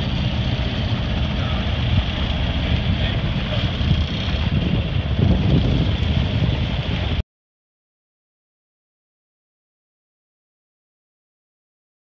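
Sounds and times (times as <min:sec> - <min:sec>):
low rumble: 0:00.0 - 0:07.2
wind buffeting microphone: 0:00.0 - 0:07.2.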